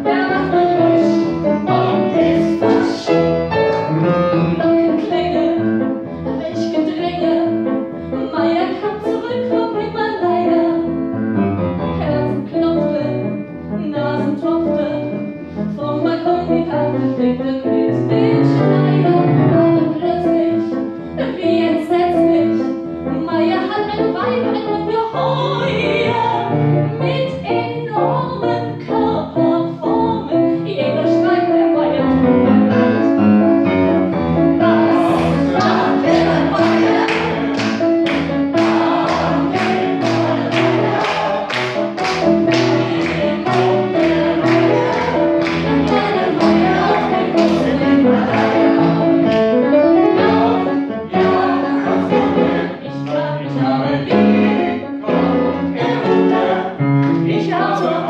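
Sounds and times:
woman singing: 0.0 - 3.2, 4.6 - 5.6, 6.3 - 7.6, 8.2 - 10.8, 12.0 - 15.1, 15.7 - 32.2
grand piano accompaniment: 0.0 - 58.0
sharp handclaps: 35.6 - 46.6.

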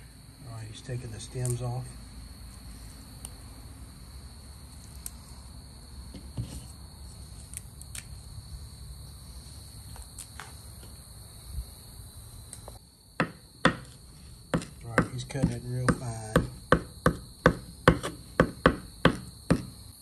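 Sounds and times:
knife chopping on cutting board: 13.2 - 13.9, 14.5 - 19.7.

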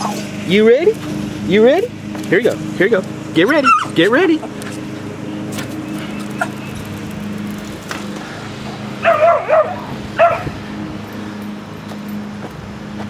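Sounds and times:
dog barking: 9.0 - 10.5.

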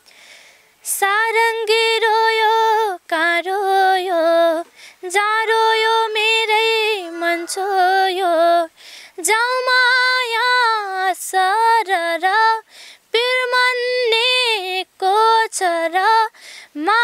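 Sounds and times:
girl singing unaccompanied: 0.8 - 17.0.

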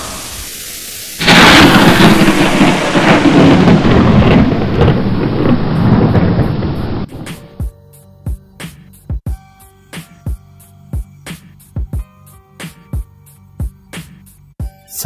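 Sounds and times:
thunderclap with rolling rumble: 1.2 - 7.7.

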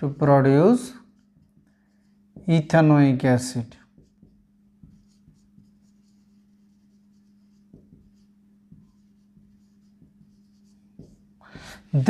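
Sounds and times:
marker pen scratching on whiteboard: 0.1 - 3.0, 3.6 - 12.0.

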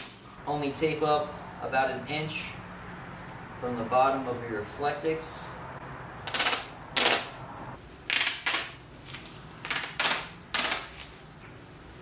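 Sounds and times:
duct tape ripping off roll: 0.0 - 0.2, 6.2 - 7.4, 8.1 - 11.2.

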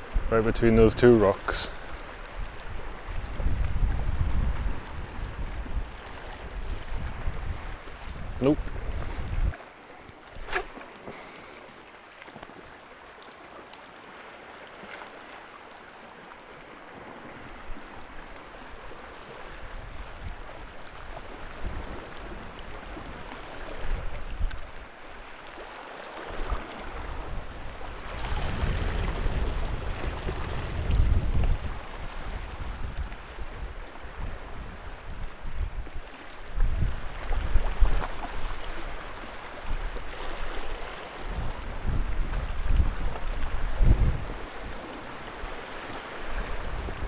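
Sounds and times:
wind gusting across microphone: 0.0 - 9.6, 26.4 - 47.0
sea water washing against rocks: 1.0 - 13.2, 13.9 - 47.0.

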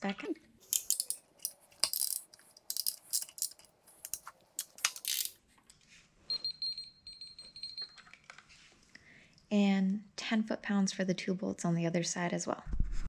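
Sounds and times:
steady high beep: 6.3 - 8.0.

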